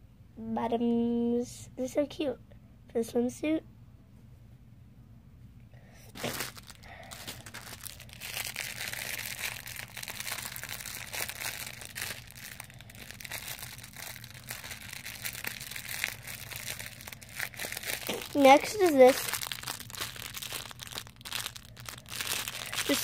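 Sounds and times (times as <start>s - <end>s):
plastic bag crinkling: 6.1s - 23.0s.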